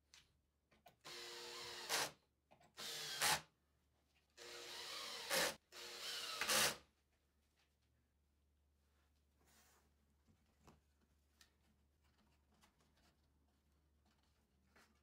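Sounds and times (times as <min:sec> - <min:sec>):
cordless drill driving screws: 0:01.0 - 0:02.2, 0:02.8 - 0:03.4, 0:04.4 - 0:06.8.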